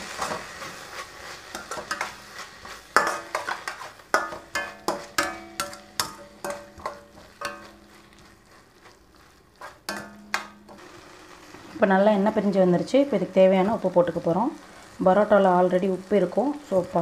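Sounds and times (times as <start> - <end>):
frying sizzle: 0.0 - 17.0
utensil knocking on metal pan: 4.1 - 7.7.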